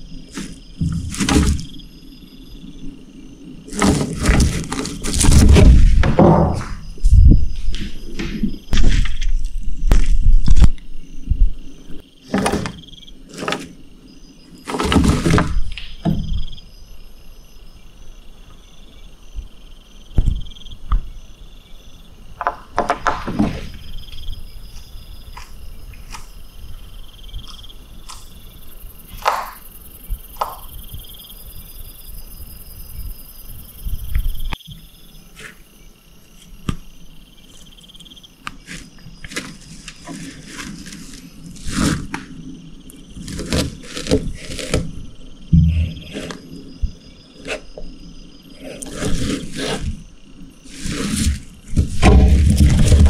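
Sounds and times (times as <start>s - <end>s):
insects chirping: 0.0s - 53.0s.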